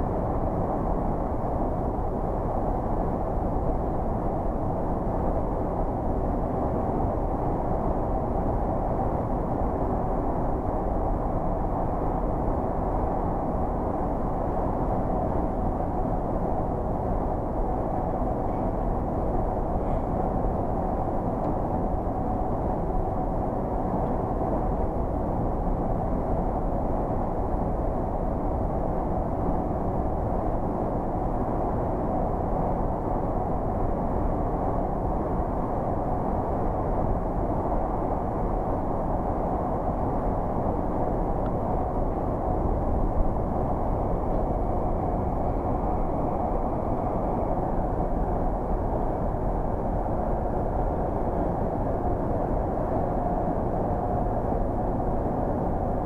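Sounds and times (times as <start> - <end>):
muffled engine and tyre noise: 0.0 - 56.0.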